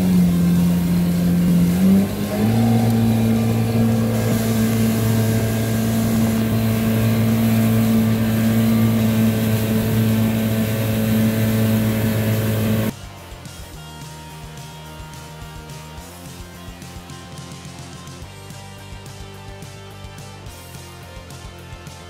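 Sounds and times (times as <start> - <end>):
boat engine running: 0.0 - 12.9.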